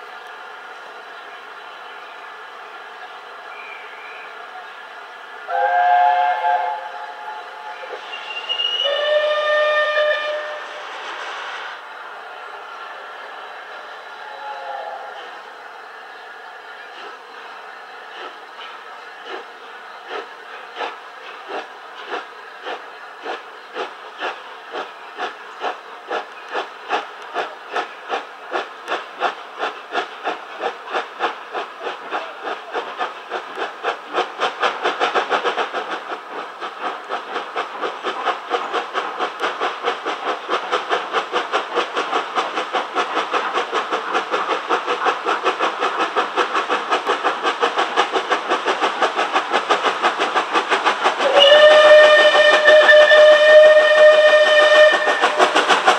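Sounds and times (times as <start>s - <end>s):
steam locomotive exhaust chuffing: 0.0s - 55.9s
steam hissing from drain cocks: 5.4s - 11.9s, 18.0s - 55.9s.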